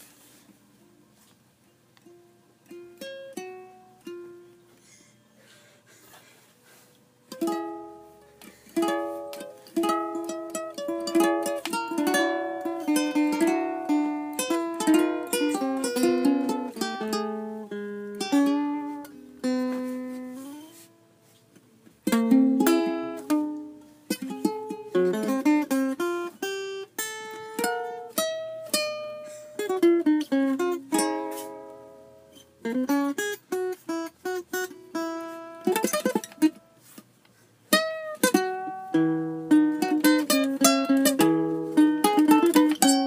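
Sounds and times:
ukulele plucked notes: 2.0 - 4.7, 7.3 - 20.9, 22.0 - 37.0, 37.7 - 43.0
guitar plucked notes: 7.3 - 21.0, 22.0 - 36.8, 37.7 - 43.0.

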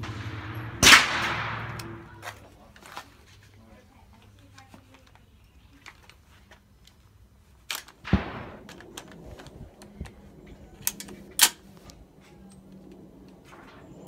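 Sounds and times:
gunshots: 0.0 - 2.4, 8.0 - 8.8.

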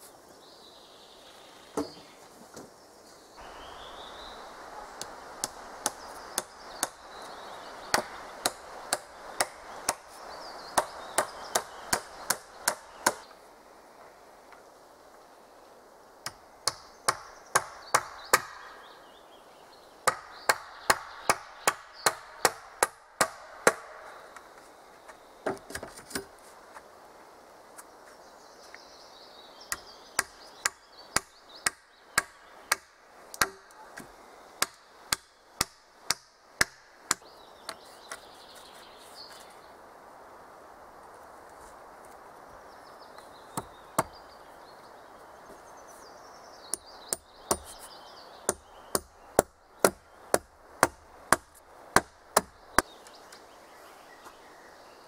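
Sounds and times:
hand tool striking wood: 10.8 - 13.2, 29.7 - 38.2, 46.7 - 47.8, 48.5 - 52.9.

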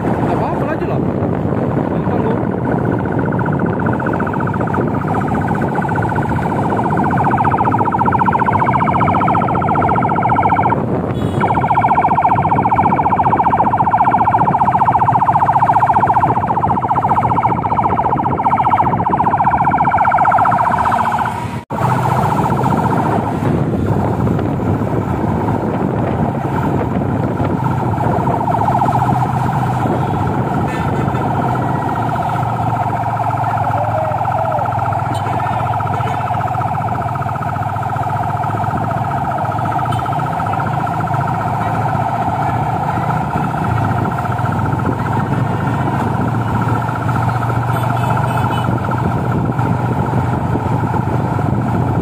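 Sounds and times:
passing traffic rumble: 0.0 - 52.0
police siren: 0.0 - 52.0.

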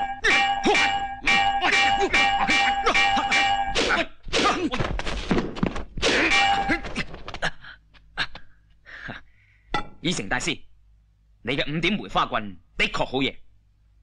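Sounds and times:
wooden staffs clacking: 0.0 - 7.4.

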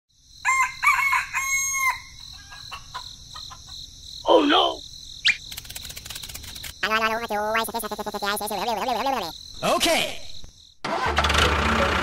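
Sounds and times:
insects: 0.1 - 11.1
rooster crowing: 0.4 - 2.8
bird chirps: 5.2 - 9.6.

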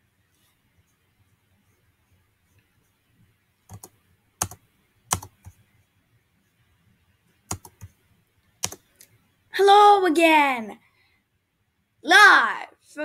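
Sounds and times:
faint room hiss: 0.0 - 13.0
sharp computer clicks: 3.7 - 5.6, 7.5 - 8.0, 8.6 - 9.2.

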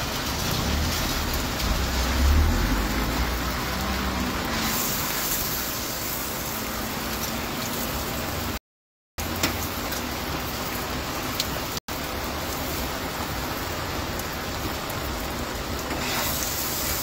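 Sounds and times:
low rumble: 0.0 - 4.8
heavy rain hissing: 0.0 - 8.6, 9.3 - 17.0
oil sizzling on griddle: 0.0 - 8.6, 9.2 - 17.0.

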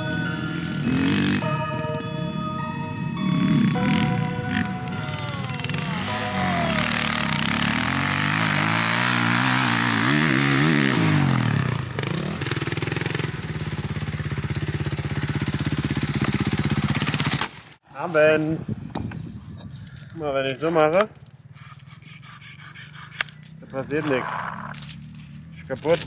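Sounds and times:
motocross bike engine revving: 0.0 - 1.7, 3.4 - 17.4, 23.6 - 26.0.

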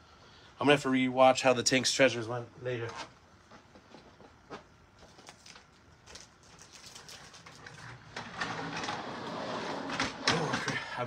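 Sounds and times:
rustling: 2.9 - 8.0.

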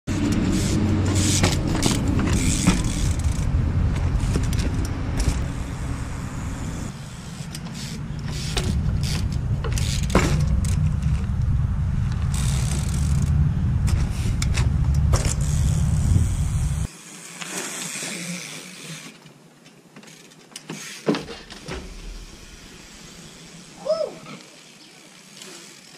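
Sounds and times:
wind on microphone: 10.6 - 16.9.

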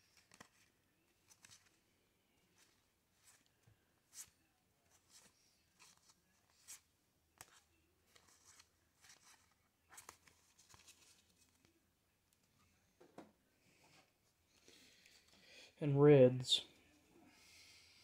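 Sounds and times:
paper cards being leafed through: 0.0 - 1.8, 7.4 - 11.7.

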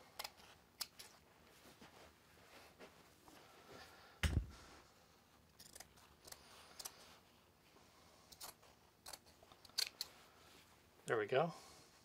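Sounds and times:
thump: 4.2 - 4.6.

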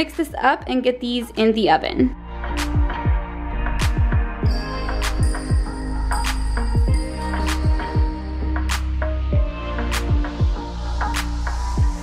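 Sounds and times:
background music with drum beat: 2.6 - 12.0.

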